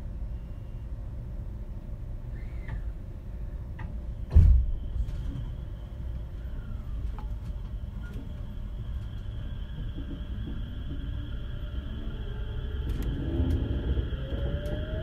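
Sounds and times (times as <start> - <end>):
low hum of standing train: 0.0 - 15.0
train doors thumping shut: 3.8 - 5.5.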